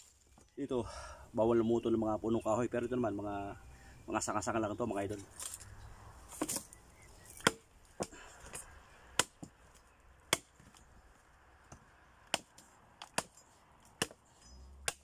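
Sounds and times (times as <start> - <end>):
machete chopping a branch: 6.3 - 9.6, 10.3 - 10.8, 11.7 - 15.0.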